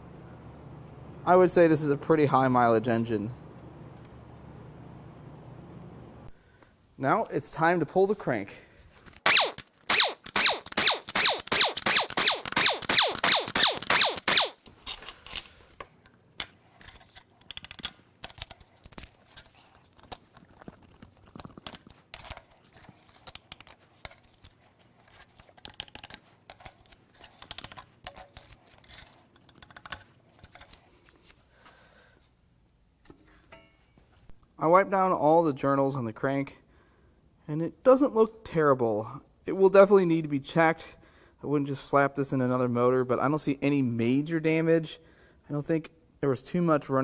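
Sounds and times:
air impact wrench rattling: 0:09.3 - 0:15.2.

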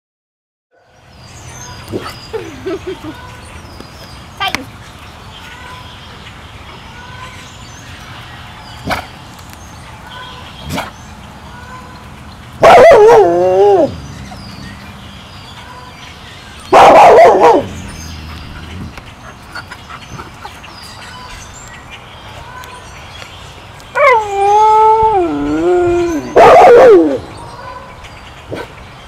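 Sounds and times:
wolf howling: 0:12.6 - 0:14.0, 0:23.9 - 0:27.9
wolves howl-barking: 0:12.6 - 0:14.0, 0:16.7 - 0:17.8, 0:23.9 - 0:28.7.

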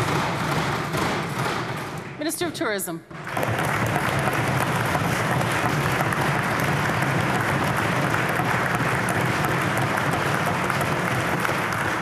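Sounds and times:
people clapping: 0:03.2 - 0:12.0.

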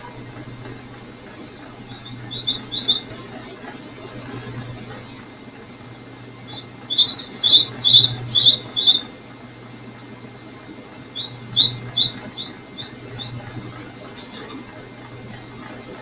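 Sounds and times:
faint low hum: 0:00.0 - 0:16.0
songbird chirping: 0:01.9 - 0:03.3, 0:06.5 - 0:09.2, 0:11.2 - 0:14.6.

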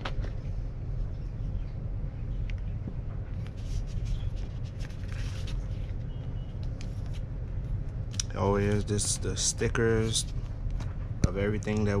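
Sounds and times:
steady low rumble: 0:00.0 - 0:12.0
paper rustling: 0:03.4 - 0:06.0.

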